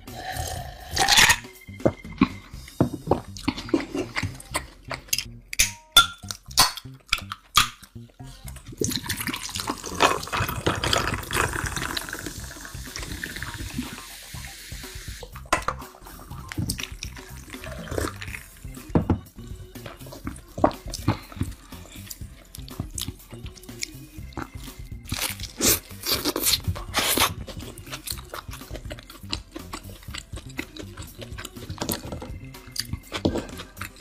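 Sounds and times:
close chewing with mouth clicks: 19.8 - 34.0.

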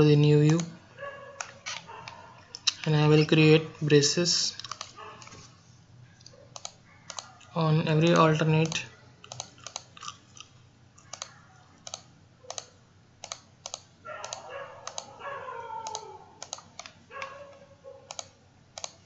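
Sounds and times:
computer mouse clicking: 0.4 - 0.7, 1.4 - 2.9, 4.6 - 5.4, 6.2 - 7.4, 8.1 - 10.0, 11.0 - 15.2, 15.8 - 17.4, 18.1 - 19.0.

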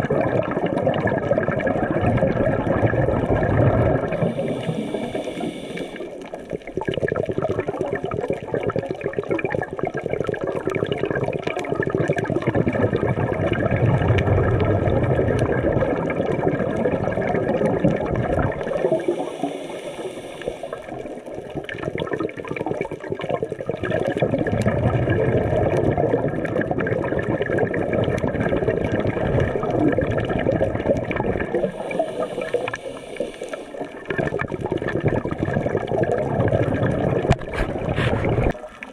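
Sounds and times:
exhaled bubbles gurgling: 0.0 - 38.9
underwater crackling: 0.0 - 38.9
demand valve hissing: 4.2 - 6.1, 18.8 - 21.0, 31.7 - 33.8.

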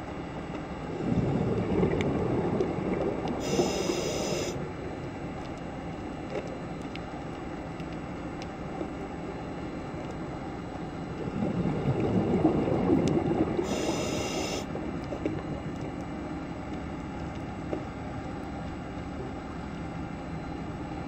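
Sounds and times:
low underwater rumble: 0.3 - 20.5.

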